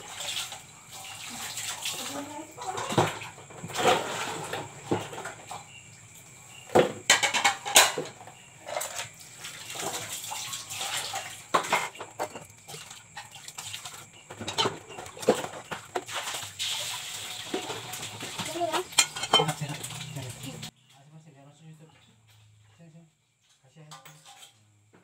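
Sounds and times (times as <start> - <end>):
water splashing and pouring: 0.0 - 5.6, 8.7 - 20.7.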